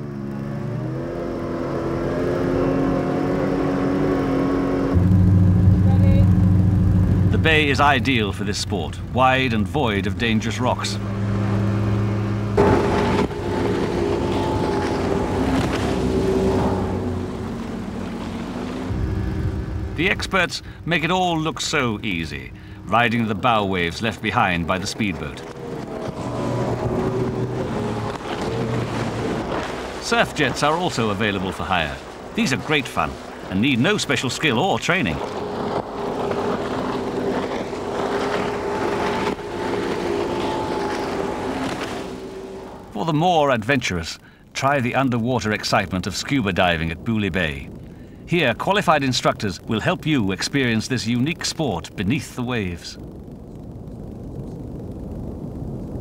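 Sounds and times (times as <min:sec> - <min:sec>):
speedboat engine running: 0:00.0 - 0:43.5, 0:45.1 - 0:56.0
rush of water: 0:06.4 - 0:43.2
small engine running: 0:35.1 - 0:42.8.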